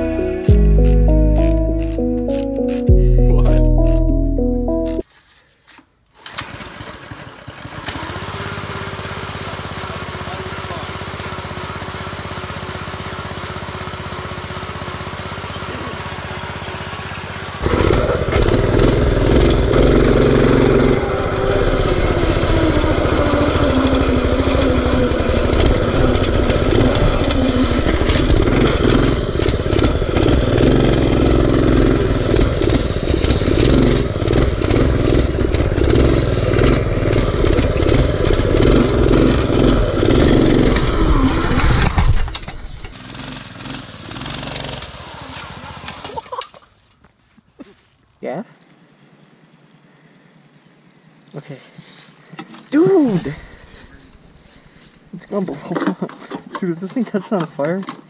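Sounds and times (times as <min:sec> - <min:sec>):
mini bike engine revving: 0:06.2 - 0:46.6, 0:52.4 - 0:54.4.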